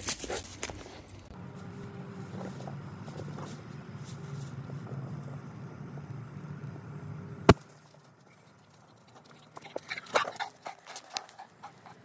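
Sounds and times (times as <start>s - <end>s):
footsteps on dry leaves: 0.0s - 5.2s
low hum: 0.1s - 10.1s.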